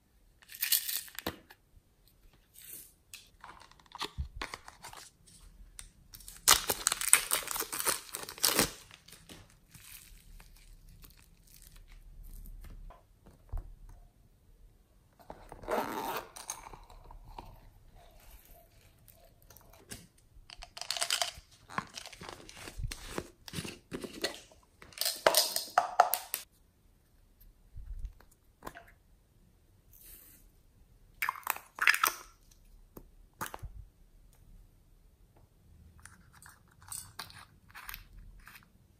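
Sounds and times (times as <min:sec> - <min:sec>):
plastic packaging crinkling: 0:06.2 - 0:12.7.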